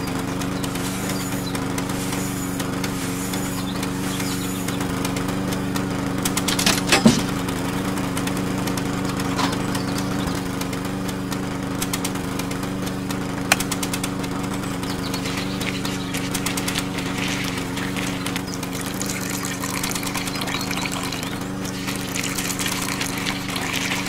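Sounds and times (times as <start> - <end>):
small motor humming: 0.0 - 24.0.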